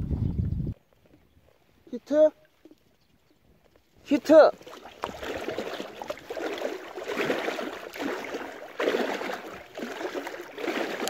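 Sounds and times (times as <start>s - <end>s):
fin drive churning water: 4.0s - 11.0s.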